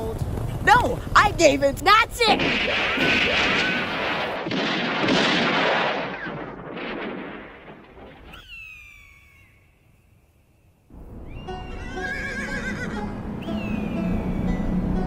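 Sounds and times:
gunshot blast: 0:02.3 - 0:08.5
falling ricochet whine: 0:02.3 - 0:09.7.

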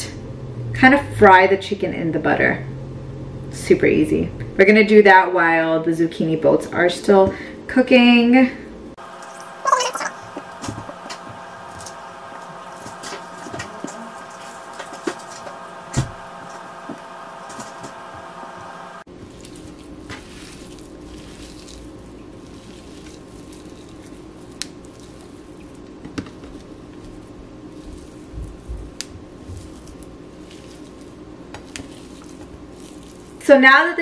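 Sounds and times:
steady hum: 0:08.7 - 0:33.7
meat being pulled and torn: 0:19.1 - 0:33.4.

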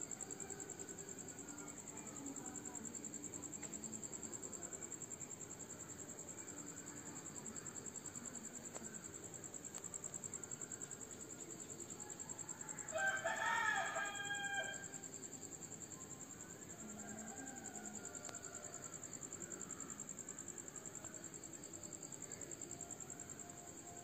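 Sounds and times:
crickets chirring: 0:00.0 - 0:24.0
rooster crowing: 0:12.5 - 0:15.0.

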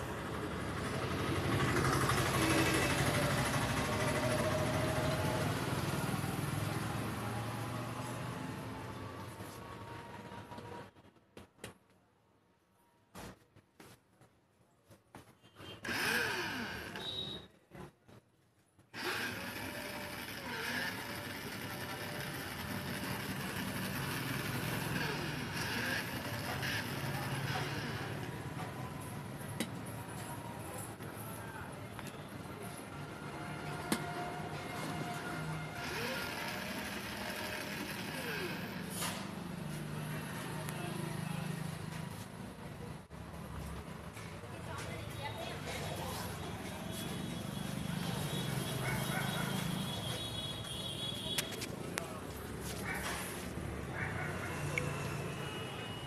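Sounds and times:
toy car electric motor whirring: 0:15.8 - 0:17.3, 0:19.0 - 0:28.3, 0:35.7 - 0:39.0.

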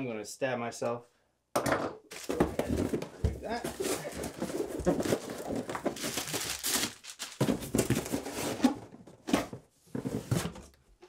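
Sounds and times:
cardboard box flaps rustling: 0:02.2 - 0:10.7.

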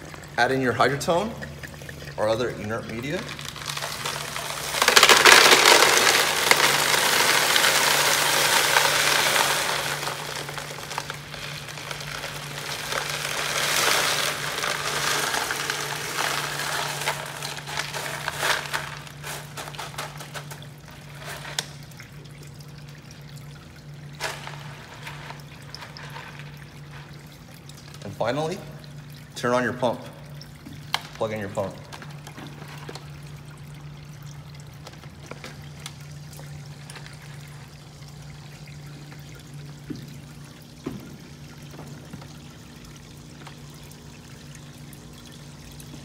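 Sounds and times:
pebbles clicking: 0:02.2 - 0:21.7
pebbles pouring onto plastic: 0:02.3 - 0:21.7, 0:24.2 - 0:27.2.

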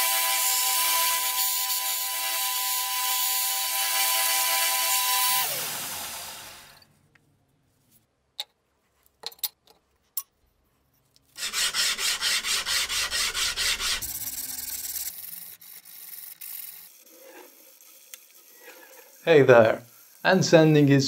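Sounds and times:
abrasive sanding steel blade: 0:11.4 - 0:21.0.

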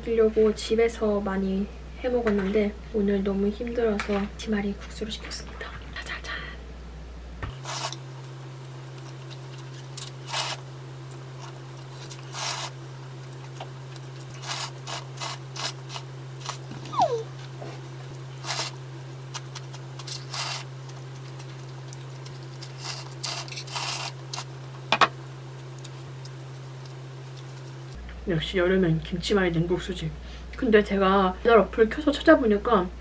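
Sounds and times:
steady low hum: 0:00.0 - 0:33.0
slurping noodles: 0:11.4 - 0:12.8, 0:14.3 - 0:17.2, 0:18.4 - 0:18.8
short falling squeak: 0:16.8 - 0:17.3.

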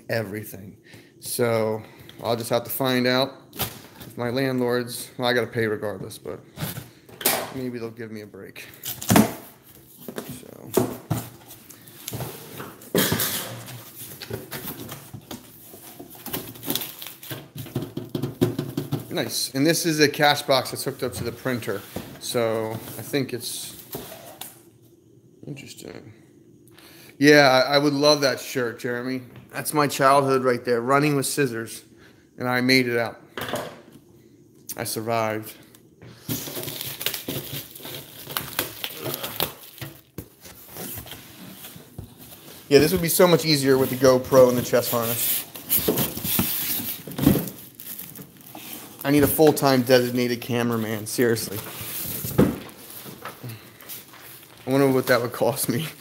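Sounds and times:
plastic bag crinkling and tearing: 0:36.4 - 0:40.2, 0:44.6 - 0:50.6.

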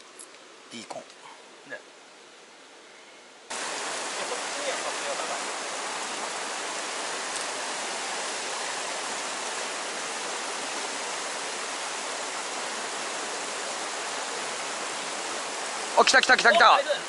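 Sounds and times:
stream rushing over rocks: 0:03.5 - 0:17.0.

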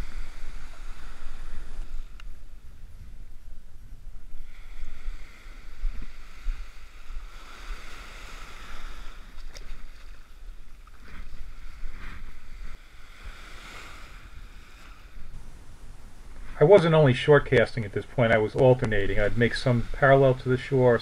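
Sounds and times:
surf washing up a beach: 0:00.0 - 0:02.8, 0:04.3 - 0:21.0
wind buffeting microphone: 0:00.0 - 0:09.0.

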